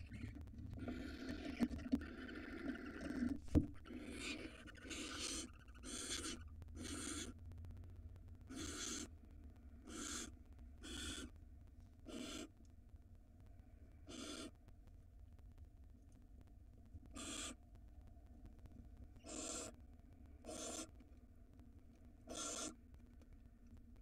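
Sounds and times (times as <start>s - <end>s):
owl hissing calls: 0.0s - 7.4s, 8.5s - 9.1s, 9.8s - 11.3s, 12.1s - 12.5s, 14.0s - 14.6s, 17.1s - 17.6s, 19.2s - 19.8s, 20.4s - 20.9s, 22.2s - 22.8s.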